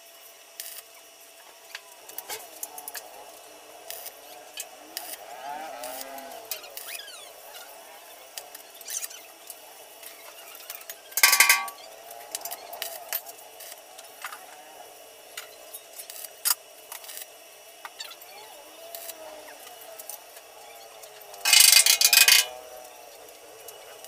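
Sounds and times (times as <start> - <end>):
arc welder burst: 0.6 - 0.9, 3.8 - 7.7, 8.3 - 14.4, 15.3 - 20.1, 21.4 - 22.6
electrode tip ticking on metal: 11.2 - 11.8.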